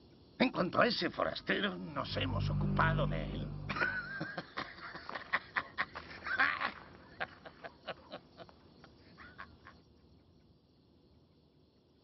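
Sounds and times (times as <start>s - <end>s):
high wavering vocal sound: 2.0s - 4.2s.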